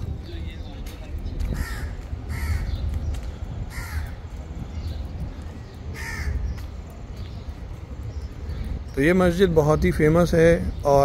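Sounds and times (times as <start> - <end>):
steady low rumble: 0.0 - 10.0
crow cawing: 1.6 - 2.8, 3.7 - 4.2, 5.9 - 6.6.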